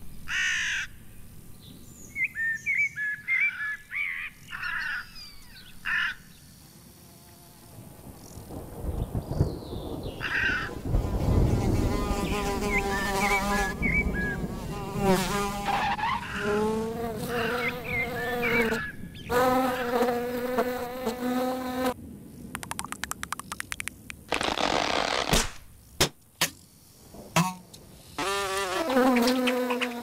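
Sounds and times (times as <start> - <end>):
cartoon fly buzzing: 16.4 - 22.0, 22.6 - 25.4, 28.2 - 30.0.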